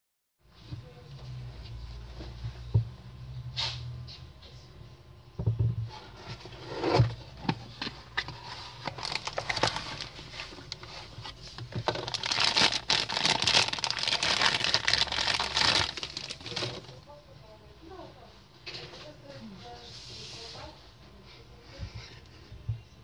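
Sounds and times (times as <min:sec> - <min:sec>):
plastic bags crinkling: 0:08.7 - 0:17.1.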